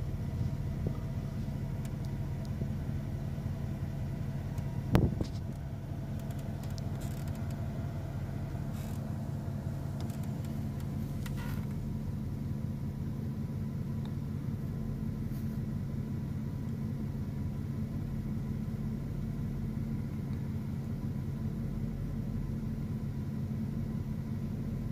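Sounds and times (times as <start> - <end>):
engine idling hum: 0.0 - 24.9
faint clicks: 5.3 - 7.6.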